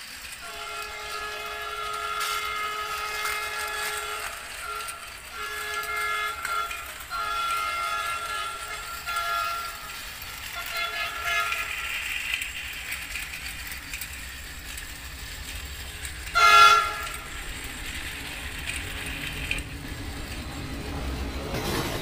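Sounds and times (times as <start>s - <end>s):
toy motor whir: 0.0s - 20.7s
toy train horn and whistle: 0.2s - 19.7s.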